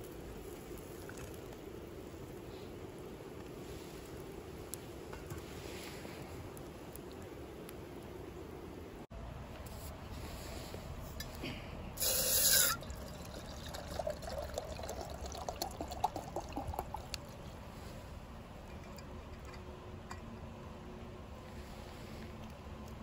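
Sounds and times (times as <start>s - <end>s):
water pouring into metal pot: 12.0s - 17.2s.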